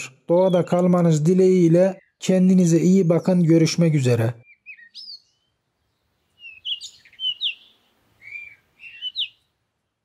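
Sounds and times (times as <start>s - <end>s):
bird chirping and whistling: 4.4s - 5.4s, 6.4s - 9.4s.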